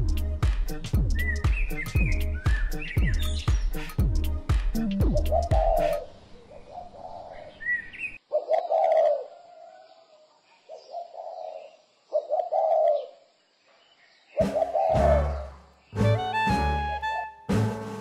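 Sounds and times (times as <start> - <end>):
background music: 0.0 - 6.0, 14.4 - 18.0
dove cooing: 4.8 - 9.8, 10.7 - 13.2, 14.4 - 15.6.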